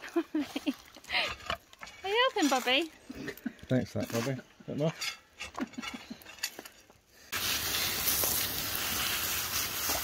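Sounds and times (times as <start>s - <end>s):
garden hose spraying water: 7.3s - 10.0s.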